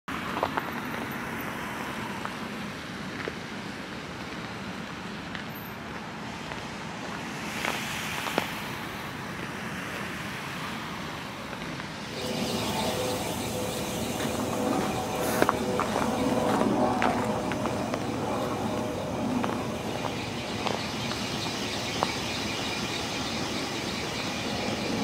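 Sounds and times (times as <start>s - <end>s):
distant road traffic: 0.1s - 25.0s
engine-like hum: 12.0s - 25.0s.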